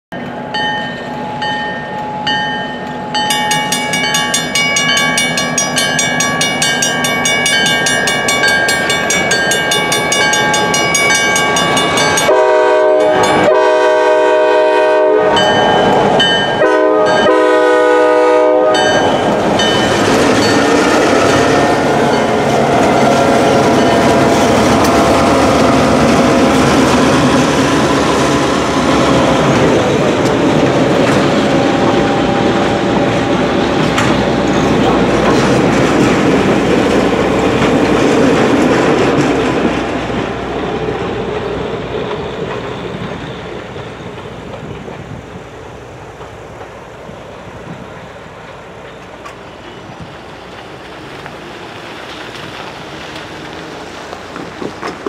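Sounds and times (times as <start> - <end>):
crossing bell ringing rapidly: 0.1 - 13.6, 15.3 - 17.6, 18.8 - 20.9, 23.6 - 24.4
train wheels clicking over rail joints: 0.7 - 12.4, 18.8 - 55.0
locomotive air horn blasts: 12.2 - 15.7, 16.5 - 19.3.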